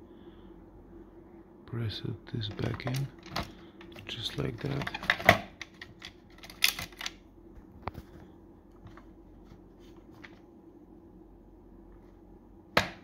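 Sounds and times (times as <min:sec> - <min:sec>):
faint hum: 0:00.0 - 0:13.0
plastic clicks and rattles: 0:04.7 - 0:07.2.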